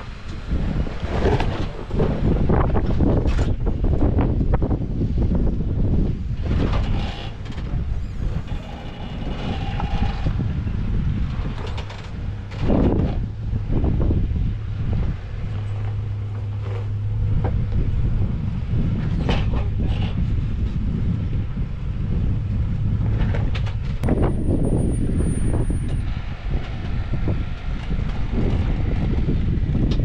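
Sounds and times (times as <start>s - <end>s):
road and tyre noise: 0.0s - 30.0s
vehicle engine running low: 0.0s - 30.0s.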